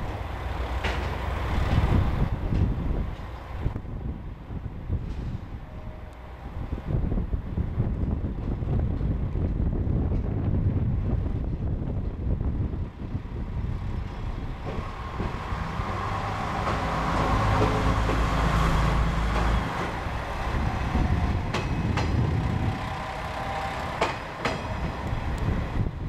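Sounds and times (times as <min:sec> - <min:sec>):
wheels clicking over rail joints: 0:00.0 - 0:03.4, 0:14.0 - 0:25.7
diesel railcar engine rumbling: 0:00.0 - 0:26.0.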